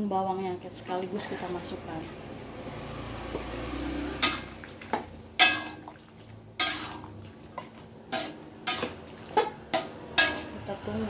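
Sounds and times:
metal spoon scraping wok: 2.7 - 5.9, 6.6 - 11.0.

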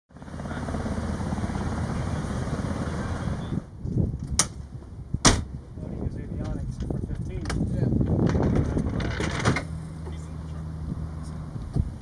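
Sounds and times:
aircraft turbine engine drone: 0.1 - 6.4.

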